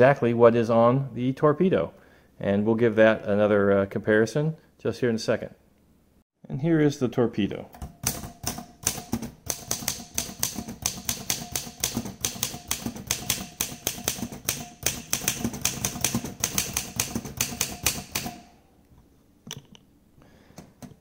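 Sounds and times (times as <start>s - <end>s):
typewriter keystrokes: 7.8s - 18.5s.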